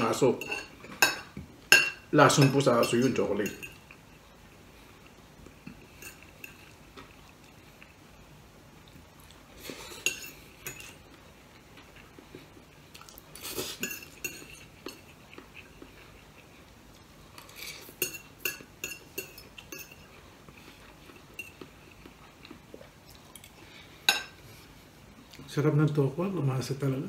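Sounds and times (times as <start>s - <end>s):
fork clinking on a plate: 13.7s - 15.1s, 18.0s - 20.1s.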